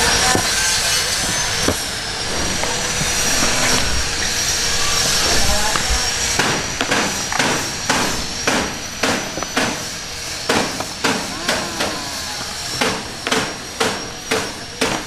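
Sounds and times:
thin high whine: 0:00.0 - 0:15.0
sharp knocks: 0:10.5 - 0:12.0, 0:12.7 - 0:15.0.

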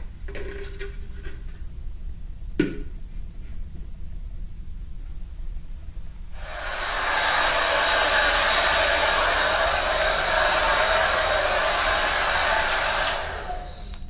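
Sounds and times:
hair dryer running: 0:06.4 - 0:14.0
hair dryer switch click: 0:12.4 - 0:14.0.

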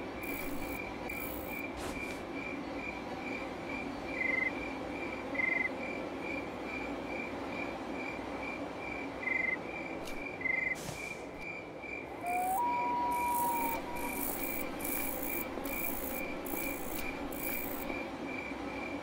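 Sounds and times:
insect chirping: 0:00.2 - 0:07.3, 0:08.9 - 0:18.5
whistle-like tone: 0:12.2 - 0:15.2.

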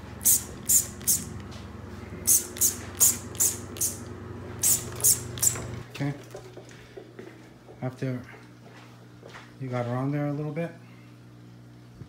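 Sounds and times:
faint steady hum: 0:00.0 - 0:12.0
spray bottle squirting: 0:00.2 - 0:01.3, 0:02.3 - 0:04.0, 0:04.6 - 0:05.7.

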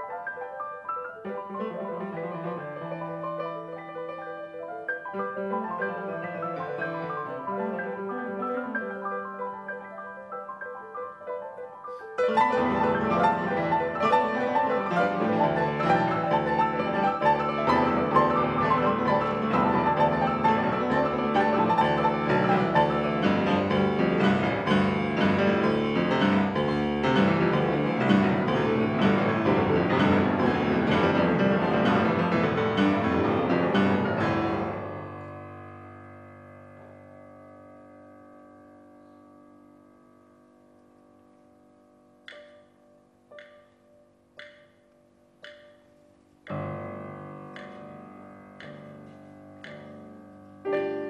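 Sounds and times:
grand pianos playing fast passage: 0:00.0 - 0:51.0
piano strings ringing: 0:12.2 - 0:40.9.

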